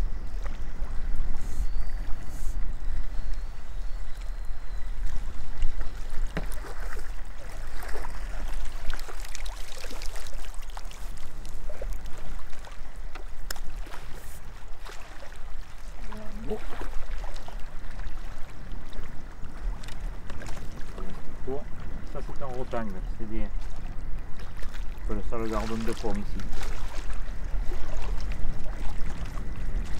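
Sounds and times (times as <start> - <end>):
small water splashes and drips: 5.0 - 21.2, 23.6 - 29.9.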